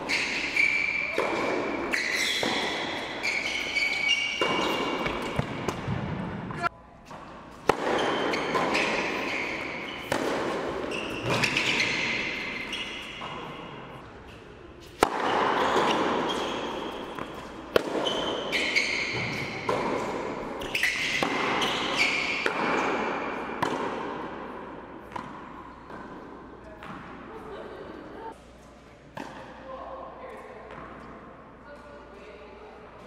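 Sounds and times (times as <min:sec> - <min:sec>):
sneaker squeaks on court: 0:00.0 - 0:05.8, 0:07.8 - 0:13.8, 0:15.3 - 0:23.7
racket striking tennis ball: 0:00.0 - 0:14.0, 0:14.8 - 0:27.1
ball bouncing on hard court: 0:00.1 - 0:13.8, 0:14.9 - 0:27.1.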